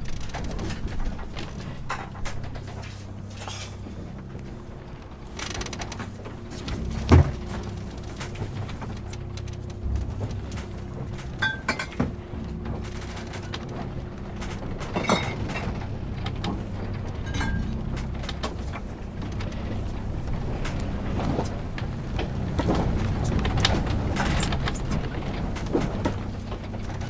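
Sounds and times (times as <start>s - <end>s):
knocks and clatter in cabin: 0.0s - 27.0s
low steady hum: 0.0s - 27.0s
heavy thump: 6.6s - 7.7s.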